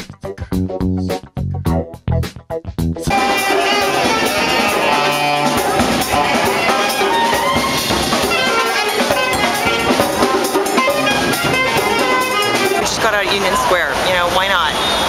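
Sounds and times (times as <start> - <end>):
drum kit beat: 0.0 - 13.8
brass horns playing: 3.1 - 13.4
hand drum: 3.2 - 13.5.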